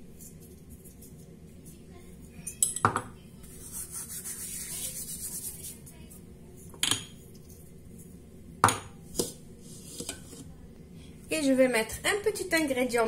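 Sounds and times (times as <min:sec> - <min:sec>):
dried herbs rustling between fingers: 0:00.0 - 0:02.0.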